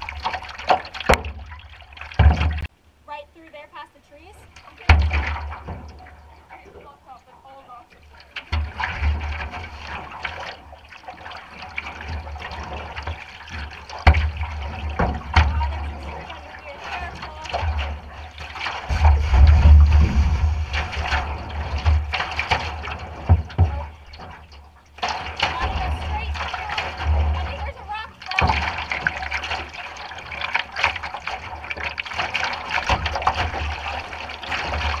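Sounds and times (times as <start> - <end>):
water splashing around canoe: 0.0 - 2.7, 4.4 - 35.0
low rumble: 18.9 - 22.2.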